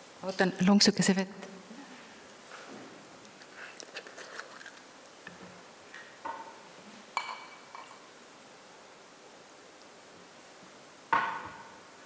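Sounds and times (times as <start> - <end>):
glass clinking: 7.2 - 8.1.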